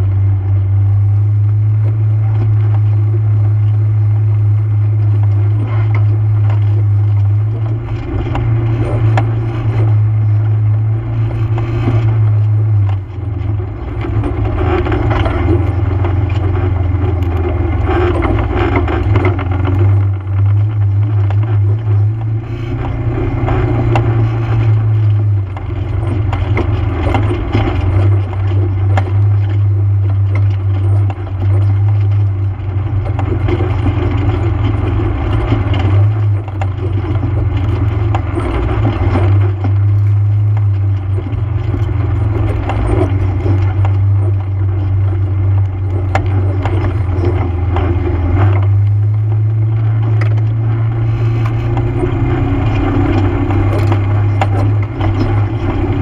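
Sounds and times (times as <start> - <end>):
atv engine revving: 0.0 - 56.0
clatter and knocking from rough ground: 0.0 - 56.0.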